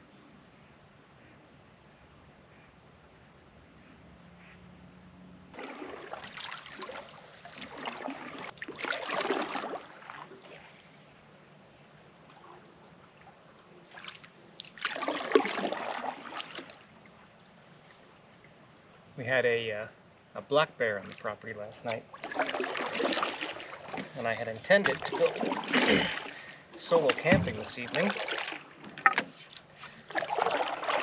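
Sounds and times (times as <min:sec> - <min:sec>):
paddle swishing and dripping: 0:05.5 - 0:18.7, 0:20.9 - 0:31.0.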